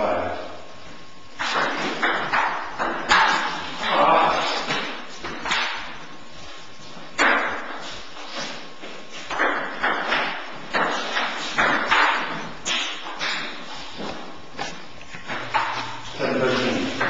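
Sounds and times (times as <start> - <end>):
ping-pong ball hits: 1.4 - 3.6.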